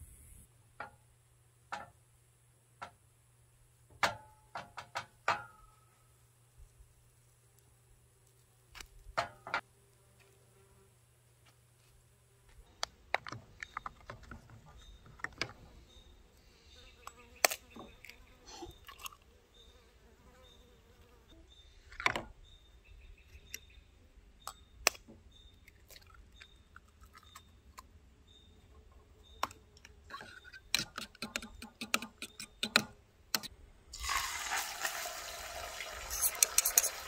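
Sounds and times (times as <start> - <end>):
eggs sizzling in frying pan: 34.0 - 37.0
fork clicking against bowl: 36.2 - 37.0.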